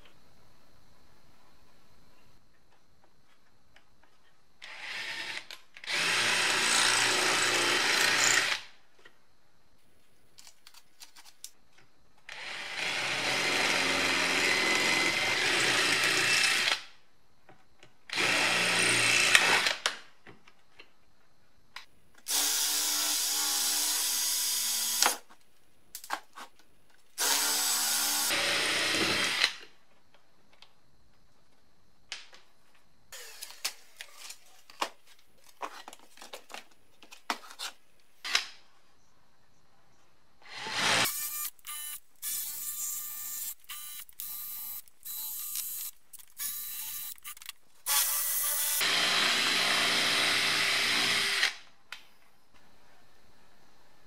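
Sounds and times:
cordless drill drilling: 4.6 - 8.7, 12.3 - 16.8, 18.1 - 19.8, 22.3 - 25.2, 27.2 - 29.6, 33.2 - 33.6, 40.5 - 51.6.

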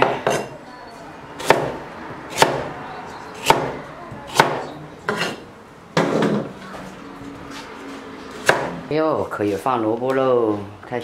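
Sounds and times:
cleaver chopping on wooden board: 1.4 - 2.7, 3.4 - 5.4, 8.4 - 8.8.

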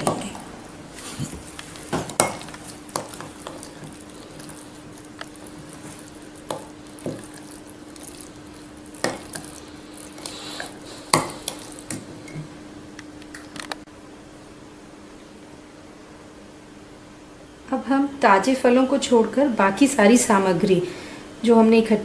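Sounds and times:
spoon stirring oats: 1.3 - 12.1.

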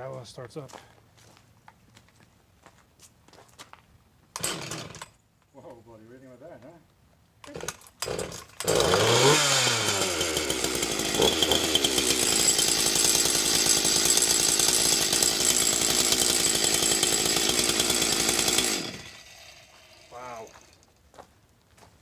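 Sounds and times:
chainsaw engine running: 4.4 - 5.0, 7.5 - 20.9.

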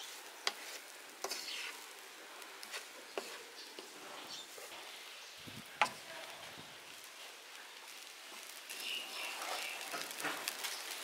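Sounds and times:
spatula scraping and tapping pan: 0.0 - 2.0, 2.6 - 4.9, 5.8 - 6.1, 9.4 - 11.0
rice sizzling in a pan: 0.0 - 11.0.

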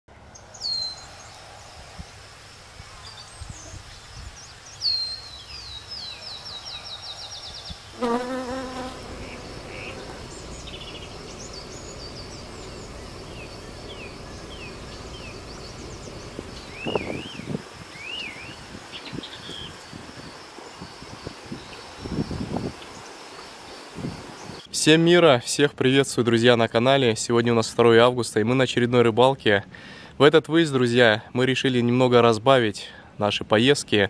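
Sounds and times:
bird chirps: 0.3 - 1.4, 2.8 - 24.7
insects trilling: 6.6 - 24.7
descending run of bird notes: 8.9 - 19.7.

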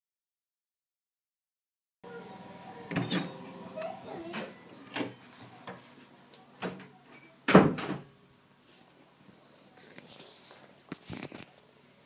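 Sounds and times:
loud door thud: 7.5 - 8.1
soft rustle: 8.6 - 11.7.

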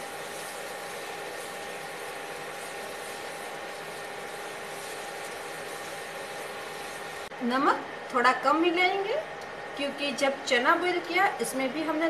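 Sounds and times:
masala simmering in a pan: 0.0 - 8.1
induction cooktop hum: 0.0 - 12.0.

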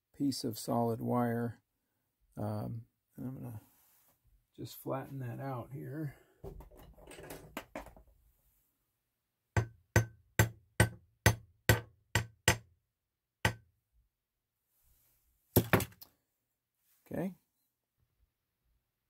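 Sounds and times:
hammer tapping copper wire: 9.6 - 12.7, 13.4 - 13.7.

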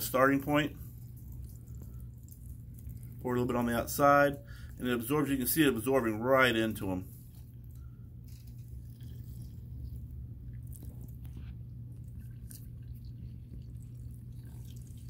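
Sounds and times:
steady low hum: 0.0 - 15.0
liquid trickling into bucket: 12.4 - 15.0.

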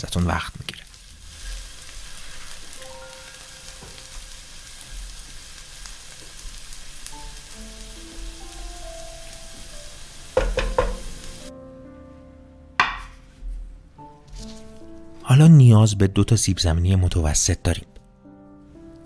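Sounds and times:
onions sizzling in oil: 0.0 - 11.5.

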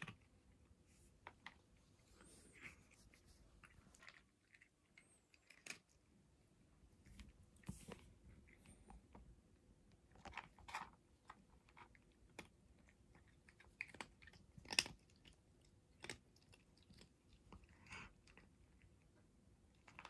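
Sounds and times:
hand scratching cat's fur: 2.0 - 3.9.

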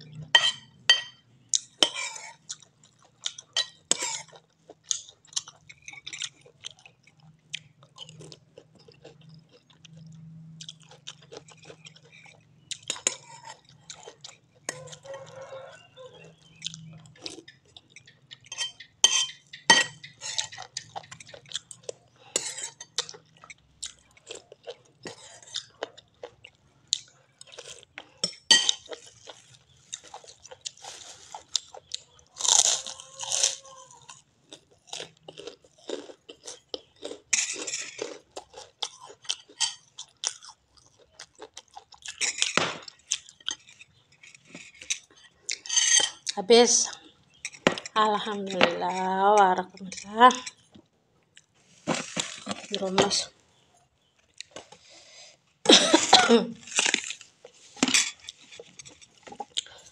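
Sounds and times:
crunching crispy cracker: 28.8 - 45.7, 51.3 - 52.8, 56.6 - 59.9.

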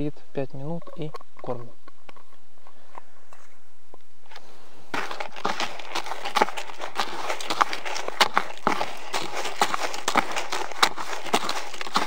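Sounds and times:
pellets rattling and crunching: 4.9 - 12.0.

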